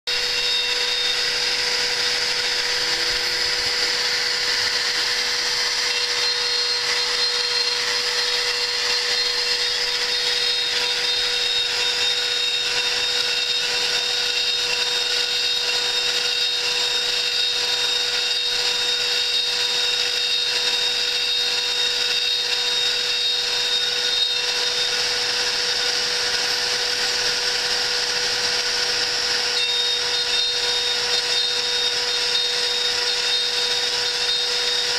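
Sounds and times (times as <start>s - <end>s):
milling machine spindle whine: 0.1s - 34.9s.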